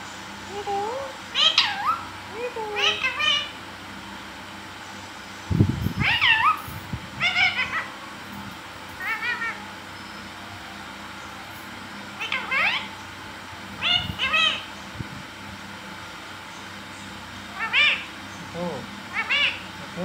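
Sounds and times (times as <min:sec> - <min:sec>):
parakeet wavering calls: 0:00.5 - 0:03.6, 0:05.8 - 0:08.3, 0:08.9 - 0:15.0, 0:16.4 - 0:20.0.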